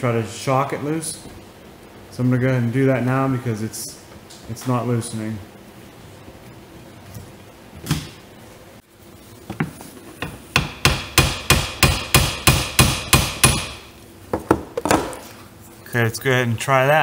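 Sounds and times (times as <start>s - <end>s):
hammer tapping on metal: 10.2s - 13.8s.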